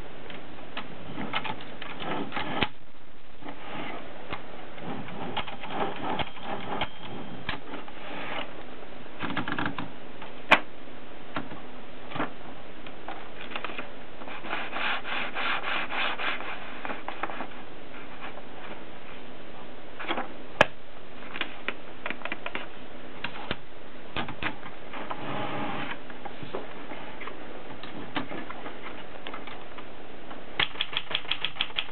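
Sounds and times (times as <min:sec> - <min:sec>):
rubbing and scraping: 0:13.4 - 0:19.2
typewriter mechanical clicks: 0:30.6 - 0:31.9.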